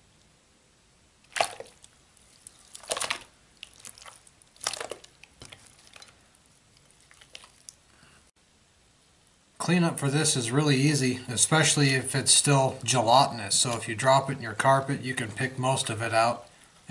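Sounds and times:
slime squelching: 1.2s - 8.3s.

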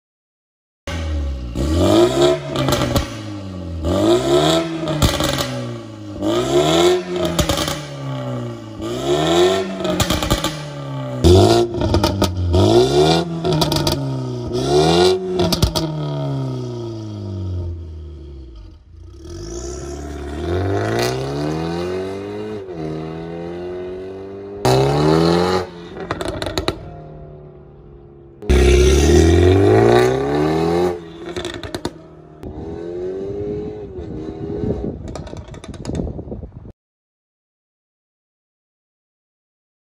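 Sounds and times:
car engine revving: 0.9s - 35.2s
car accelerating away: 28.4s - 35.0s
exhaust pops: 34.9s - 36.4s.

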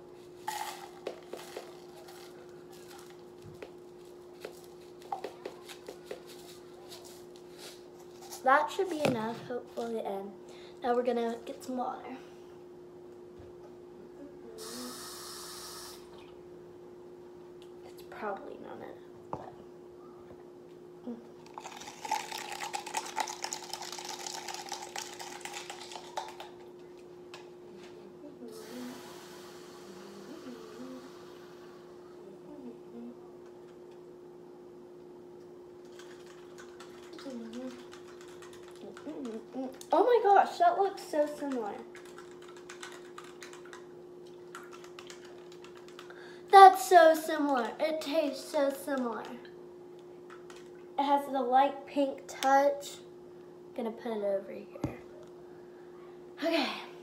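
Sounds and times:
faint steady hum: 0.0s - 57.0s
powder pouring rustle: 0.2s - 5.0s, 21.5s - 26.6s
drink rattling and sloshing in cup: 0.5s - 3.3s, 21.5s - 26.8s, 35.8s - 39.6s, 41.4s - 46.1s.

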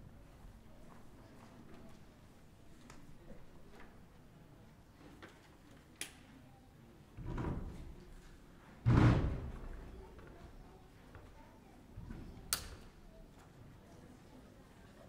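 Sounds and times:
sharp click: 12.5s - 12.8s.

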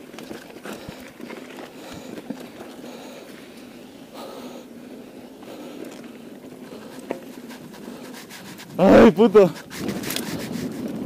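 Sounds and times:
bike tyres rolling on dirt: 0.0s - 11.0s
wind noise: 6.6s - 11.0s.

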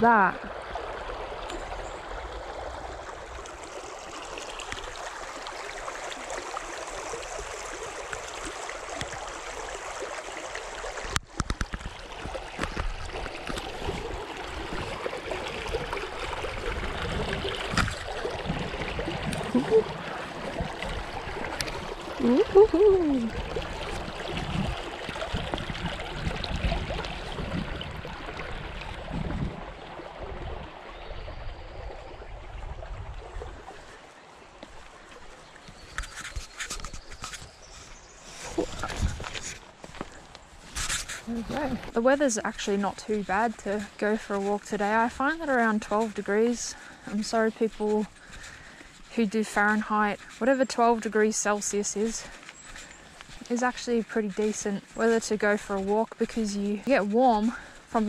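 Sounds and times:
creek water flowing over rocks: 0.0s - 58.0s
footsteps on stepping stones: 34.5s - 58.0s.

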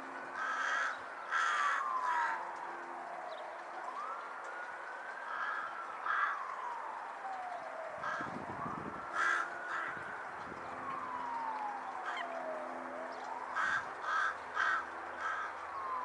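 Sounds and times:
crow cawing: 0.4s - 2.4s, 5.3s - 6.5s, 8.0s - 8.3s, 9.2s - 10.0s, 12.0s - 12.4s, 13.6s - 15.6s.

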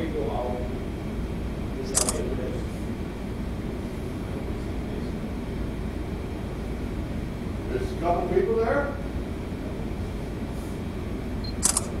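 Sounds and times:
ship engine rumble and hum: 0.0s - 12.0s
sharp click: 2.0s - 2.2s, 11.5s - 12.0s.

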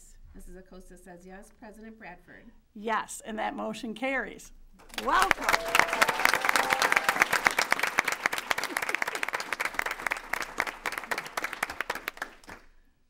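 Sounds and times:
people applauding: 4.8s - 12.8s.

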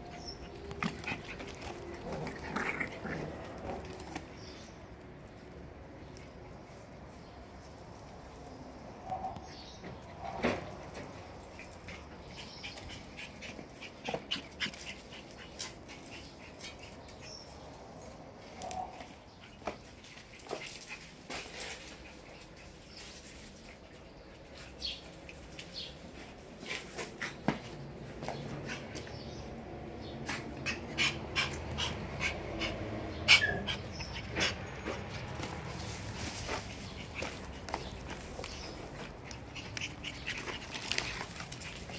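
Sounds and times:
puppy panting: 30.3s - 35.2s, 36.5s - 41.9s
paws clicking on tile: 36.4s - 41.9s.

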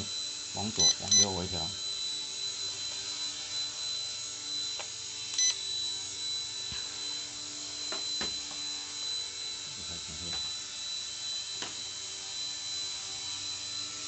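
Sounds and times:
toy helicopter rotor whine: 0.0s - 14.0s.

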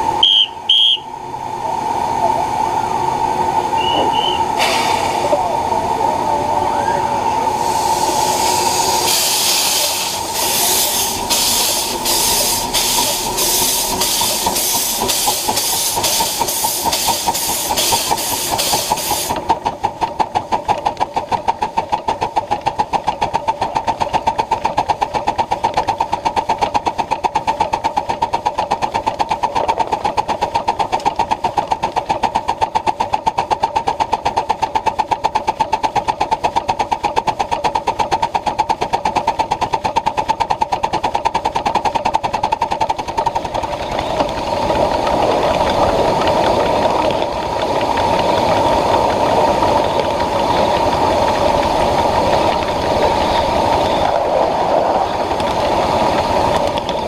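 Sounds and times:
steady tone: 0.0s - 15.5s
steam exhaust chuffs: 0.0s - 57.0s
fast even beat of train running: 7.2s - 54.3s.

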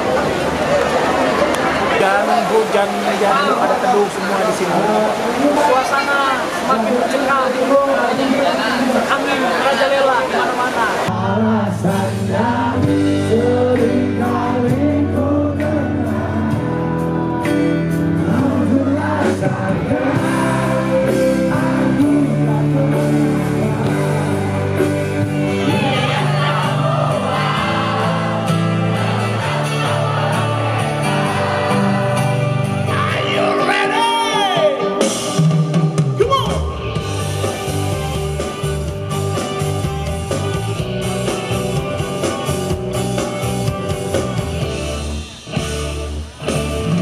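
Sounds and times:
live pop band: 0.0s - 47.0s
man singing lead vocal: 11.1s - 37.0s.

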